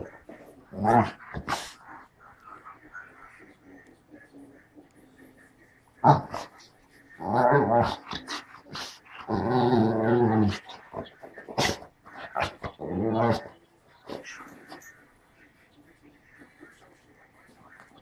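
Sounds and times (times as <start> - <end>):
dog grumbling growls: 7.2 - 10.8, 11.6 - 13.5.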